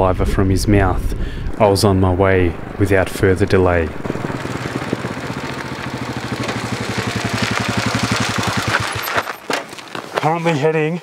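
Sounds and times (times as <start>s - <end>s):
motorcycle riding on gravel: 3.9s - 10.6s
motorcycle engine thumping: 4.0s - 10.0s.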